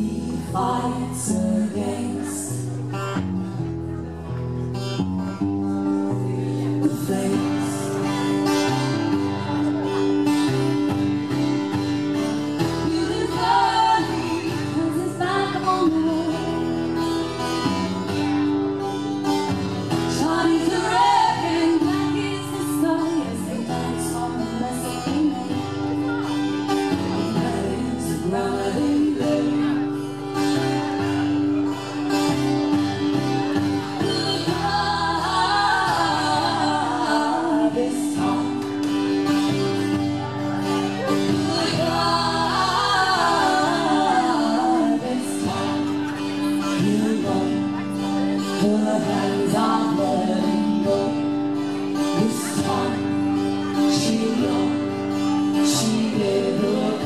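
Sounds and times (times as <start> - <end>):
person singing: 0.0 - 2.7, 6.1 - 9.0, 12.5 - 16.9, 19.9 - 30.5, 33.6 - 39.8, 40.6 - 57.0
guitars playing chords: 0.0 - 57.0.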